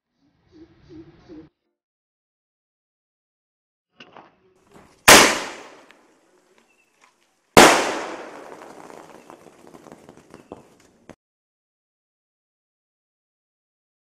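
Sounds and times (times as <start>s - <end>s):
firework bangs: 5.0s - 5.9s, 7.6s - 11.2s
firework crackling: 5.1s - 5.9s, 7.6s - 11.2s.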